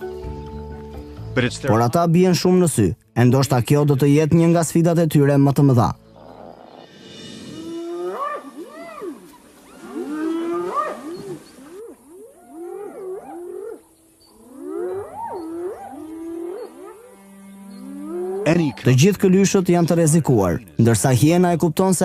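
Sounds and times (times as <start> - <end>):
rising and falling animal calls: 6.1 - 19.0.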